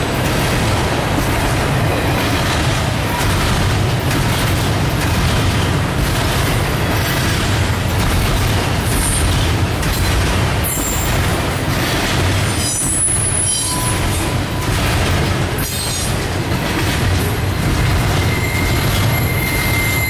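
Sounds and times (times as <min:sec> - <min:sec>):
freight train rumbling on rails: 0:00.0 - 0:20.0
wheel squeals: 0:12.5 - 0:14.7, 0:18.0 - 0:20.0.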